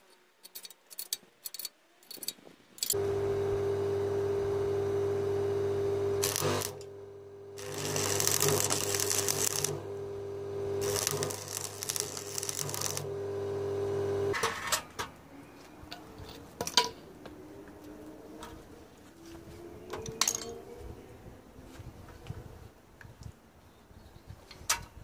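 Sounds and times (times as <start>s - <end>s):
steady electrical hum: 2.9s - 14.4s
electric arc welding crackling: 4.9s - 14.4s.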